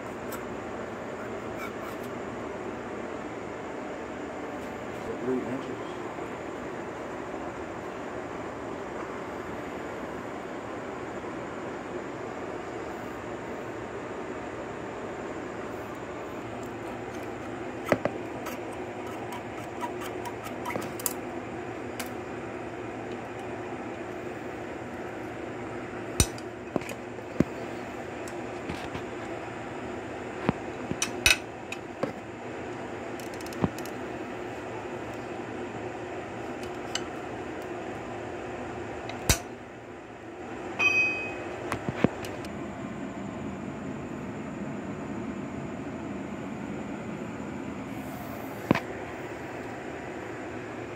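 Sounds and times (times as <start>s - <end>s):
steady background hum: 0.0s - 50.9s
small metal clicks and scraping: 33.2s - 34.0s
wrench clinking on metal: 40.8s - 41.4s.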